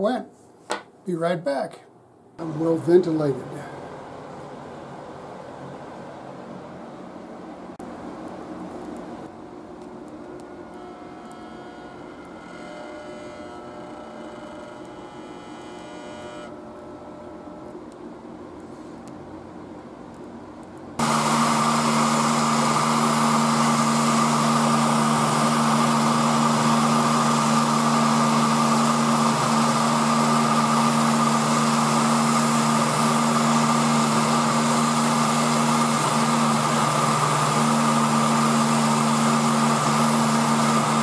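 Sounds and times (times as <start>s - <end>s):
heat gun blowing: 21.0s - 41.0s.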